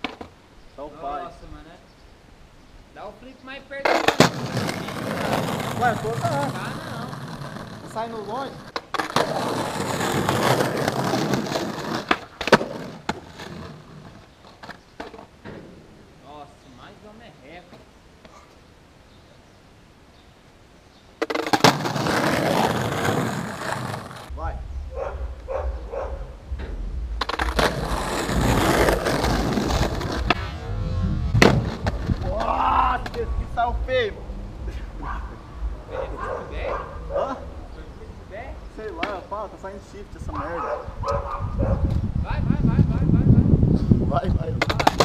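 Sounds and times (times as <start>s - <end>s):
skateboard wheels rolling on concrete: 0.0s - 1.2s, 3.6s - 18.7s, 21.0s - 45.0s
skateboard cracking on ground: 3.8s - 15.3s, 21.2s - 24.3s, 27.2s - 30.4s, 44.6s - 45.0s.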